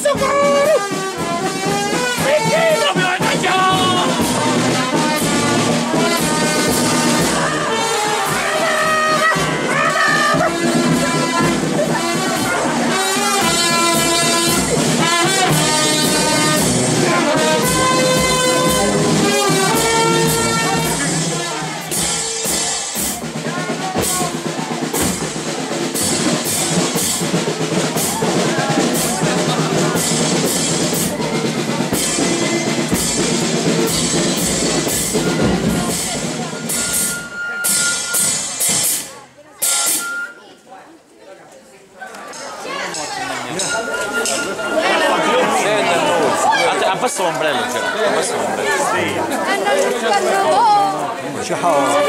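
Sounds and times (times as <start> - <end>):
music melody: 0.0 - 23.2
drums keeping a steady beat: 0.0 - 40.7, 42.3 - 52.0.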